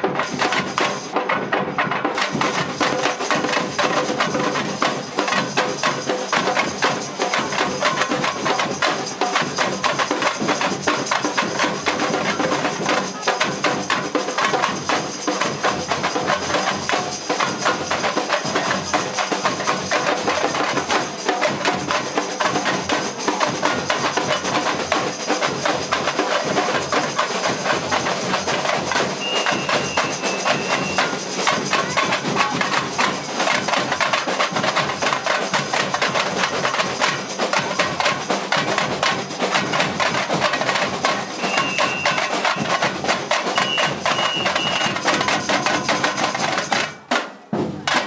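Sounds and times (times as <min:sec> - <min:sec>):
samba drum corps drumming: 0:00.0 - 0:48.0.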